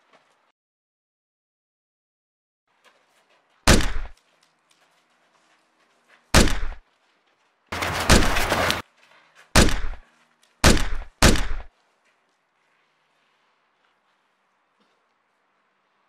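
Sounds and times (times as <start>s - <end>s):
gunshots: 3.7s - 4.2s, 6.3s - 6.8s, 7.7s - 8.8s, 9.5s - 10.0s, 10.6s - 11.7s.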